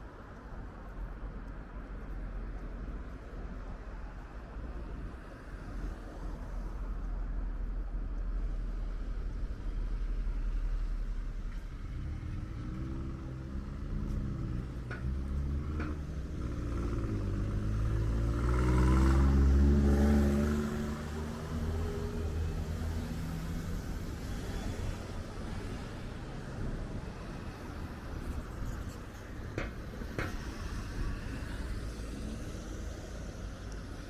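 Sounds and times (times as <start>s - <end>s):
low traffic rumble: 0.0s - 34.0s
vehicle accelerating past: 11.8s - 23.8s.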